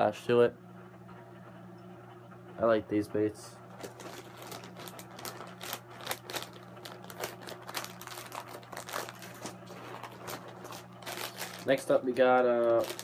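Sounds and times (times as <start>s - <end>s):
steady low hum: 0.0s - 13.0s
plastic bag crinkling: 3.8s - 13.0s.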